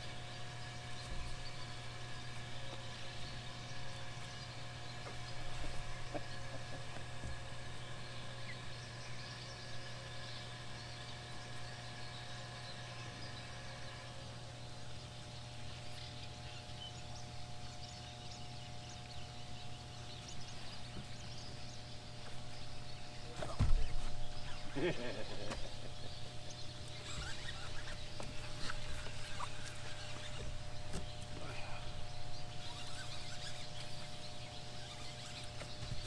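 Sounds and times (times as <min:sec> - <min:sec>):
low machine hum: 0:00.0 - 0:36.0
faint bird chirps: 0:15.3 - 0:36.0.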